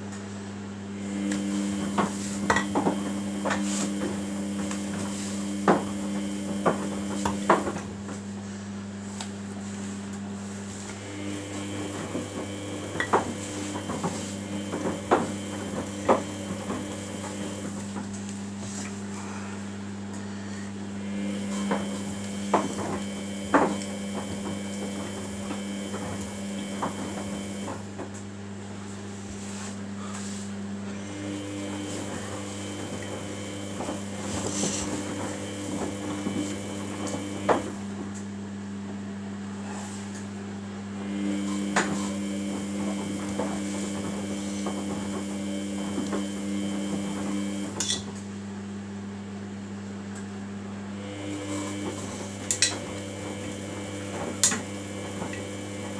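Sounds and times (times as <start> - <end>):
steady low hum: 0.0 - 38.3
washing machine motor whining: 0.0 - 55.9.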